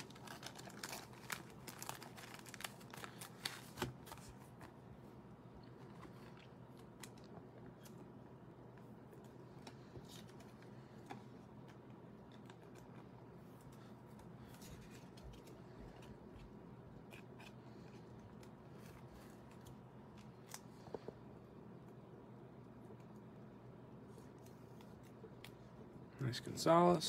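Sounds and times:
plastic card sleeves rustling: 0:00.0 - 0:04.8
low room hum: 0:00.0 - 0:27.0.

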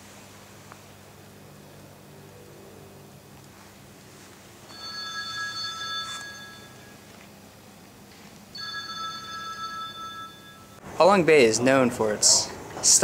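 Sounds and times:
bowl bell ringing: 0:04.6 - 0:07.2, 0:08.5 - 0:10.8.

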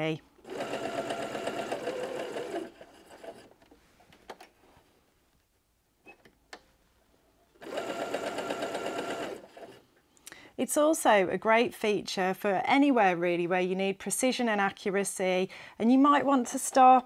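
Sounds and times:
sewing machine stitching: 0:00.4 - 0:03.6, 0:07.6 - 0:09.8.

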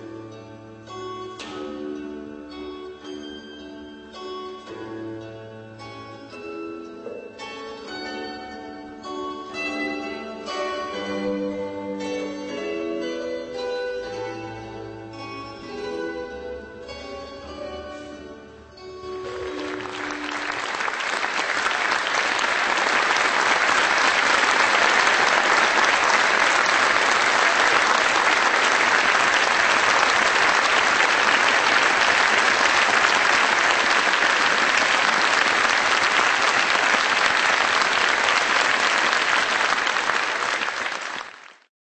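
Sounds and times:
music: 0:00.0 - 0:41.0
audience applauding: 0:19.3 - 0:41.7.

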